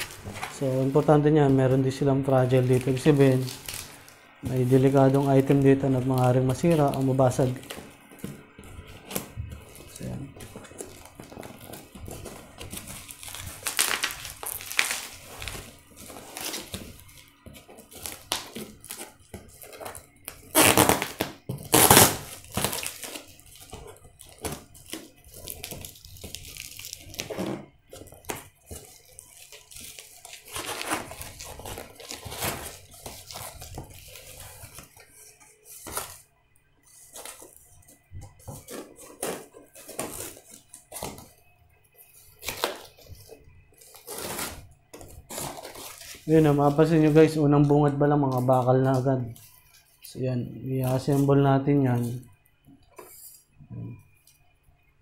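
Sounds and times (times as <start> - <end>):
crinkling plastic: 0.0 - 54.5
scraping and tearing: 2.4 - 36.2, 36.9 - 41.4, 42.0 - 50.2
scissors cutting cardboard: 8.9 - 36.2, 37.0 - 41.3.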